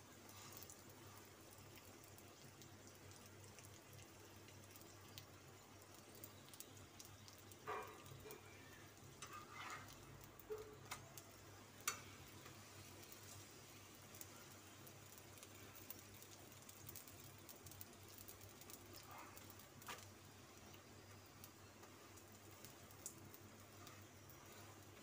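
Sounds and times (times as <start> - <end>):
metal spatula clinking on griddle: 9.2 - 10.0.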